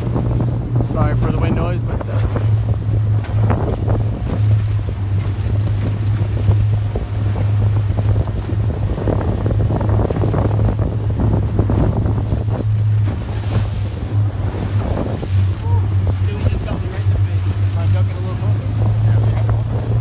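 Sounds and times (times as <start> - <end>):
boat motor drone: 0.0 - 20.0
water rushing: 0.0 - 20.0
wind buffeting microphone: 0.0 - 20.0.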